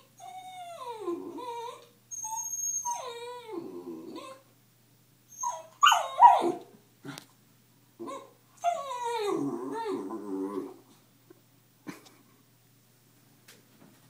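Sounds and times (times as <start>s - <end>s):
puppy whine-growl: 0.0s - 4.4s, 8.0s - 11.0s
puppy yipping: 5.4s - 6.6s.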